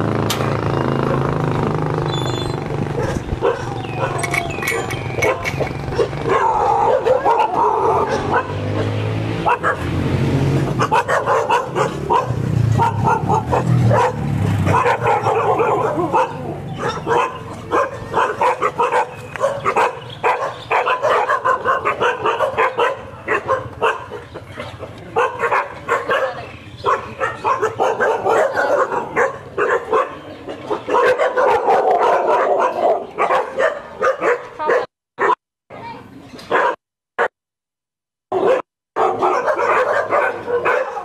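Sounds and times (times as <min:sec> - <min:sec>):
many dogs barking: 0:02.9 - 0:10.0, 0:10.7 - 0:35.4, 0:36.5 - 0:37.3, 0:38.3 - 0:41.0.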